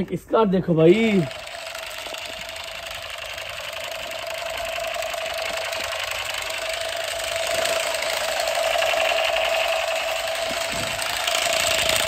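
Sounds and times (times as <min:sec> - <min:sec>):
toy gun rattling buzz: 0:00.9 - 0:12.0.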